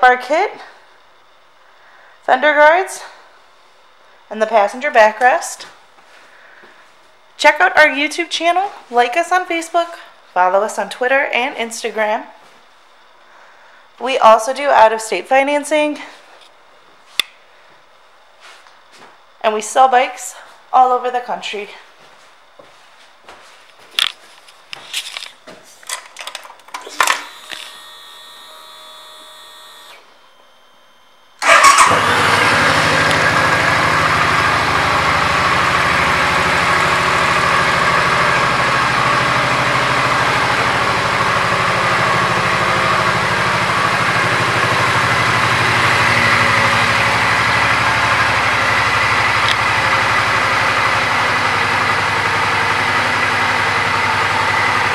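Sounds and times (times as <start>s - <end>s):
motorcycle engine starting and idling: 31.4s - 54.9s
clicks: 49.4s - 49.7s.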